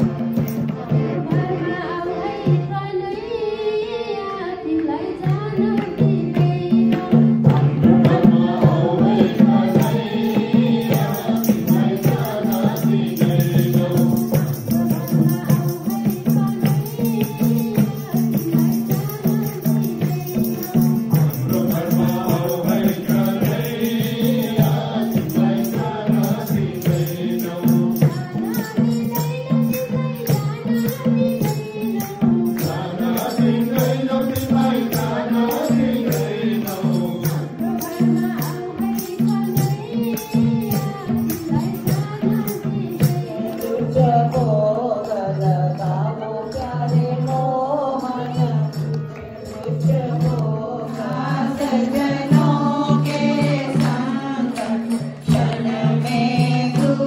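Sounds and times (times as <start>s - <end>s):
hand drums beating: 0.0s - 1.6s, 5.2s - 57.0s
harmonium drone: 0.0s - 3.6s
man singing: 21.1s - 28.2s.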